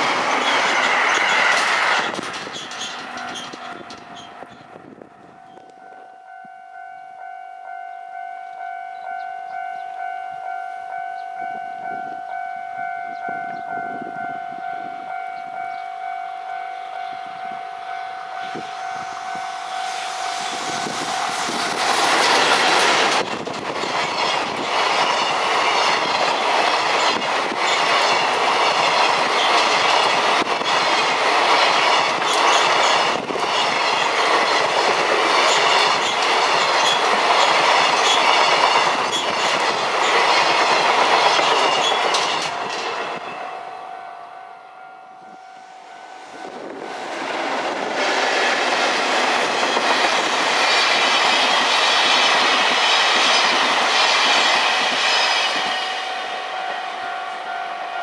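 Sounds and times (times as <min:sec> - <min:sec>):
wagon wheels clattering over rail joints: 0:00.0 - 0:04.6, 0:20.7 - 0:43.2
electric locomotive passing: 0:00.0 - 0:58.0
pulsing ringing tone: 0:02.8 - 0:23.2, 0:41.3 - 0:46.8, 0:49.6 - 0:58.0.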